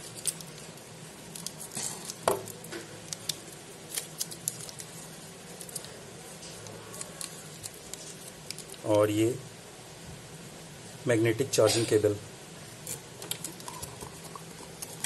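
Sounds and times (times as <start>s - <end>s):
plastic film crackling: 0.0s - 9.1s.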